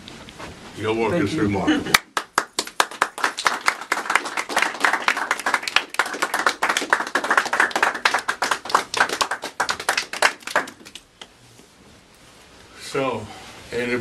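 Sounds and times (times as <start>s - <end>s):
audience applauding: 1.9s - 11.1s.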